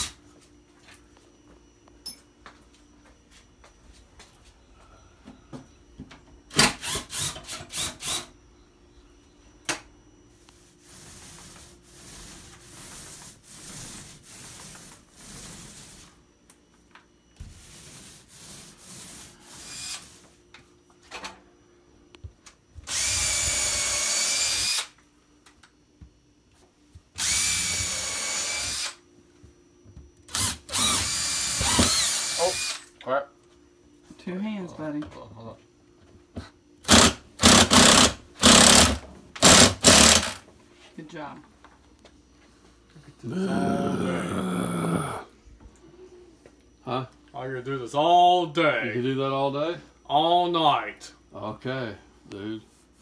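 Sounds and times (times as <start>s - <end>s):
impact driver driving screws: 36.9s - 40.4s.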